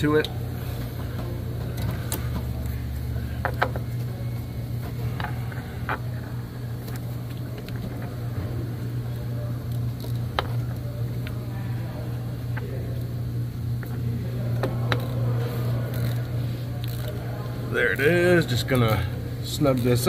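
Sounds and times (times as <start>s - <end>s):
steady low hum: 0.0s - 20.0s
ratchet clicking on bolt: 15.9s - 16.2s.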